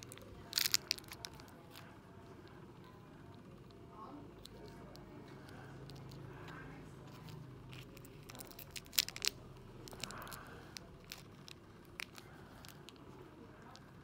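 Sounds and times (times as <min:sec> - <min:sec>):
plastic toy pieces clicking: 0:00.0 - 0:01.5, 0:07.2 - 0:13.0
plastic wrapper crinkling and tearing: 0:00.0 - 0:01.9, 0:04.4 - 0:14.0.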